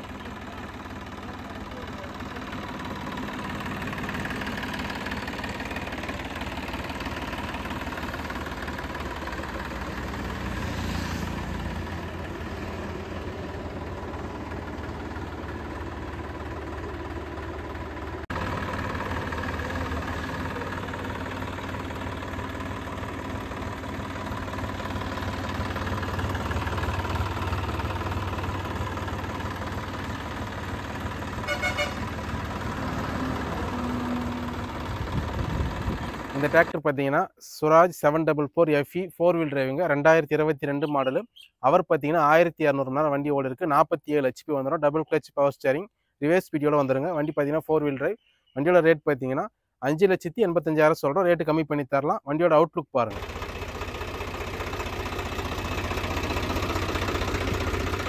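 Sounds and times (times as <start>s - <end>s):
tractor diesel engine idling: 0.0s - 36.8s, 53.0s - 58.0s.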